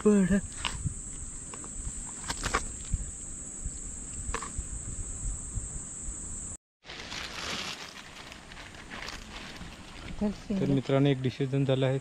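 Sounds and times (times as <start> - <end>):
insects chirring: 0.0 - 6.6
rough rustling noise: 6.8 - 11.0.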